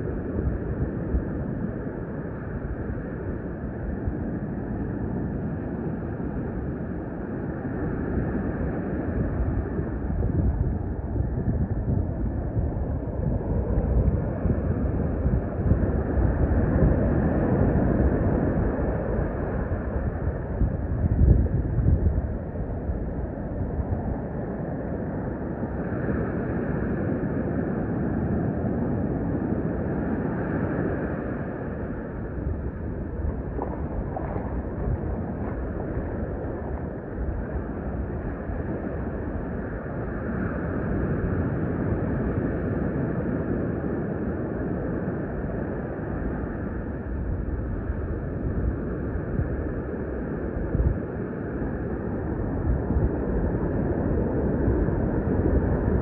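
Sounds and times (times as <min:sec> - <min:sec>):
surf on the beach: 0:00.0 - 0:56.0
wind noise on microphone: 0:00.0 - 0:56.0.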